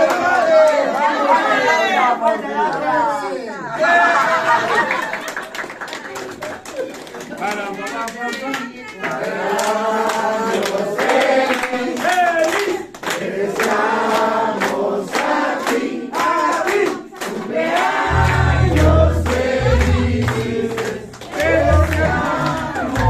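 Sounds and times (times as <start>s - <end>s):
people clapping: 0.0s - 3.1s, 3.8s - 23.0s
group singing: 0.0s - 4.5s, 9.0s - 23.0s
heavy bass line: 18.1s - 20.7s.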